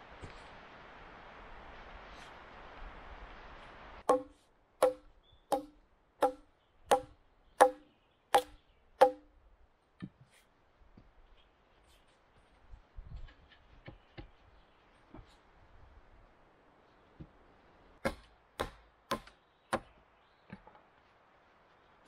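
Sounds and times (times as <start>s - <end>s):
hatchet striking log: 4.1s - 9.3s, 18.0s - 20.0s.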